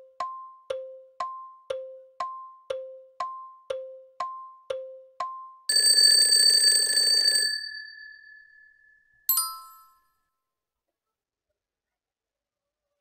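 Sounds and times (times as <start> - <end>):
countdown timer tick-tock: 0.0 - 6.0
alarm bell ringing: 5.7 - 10.0.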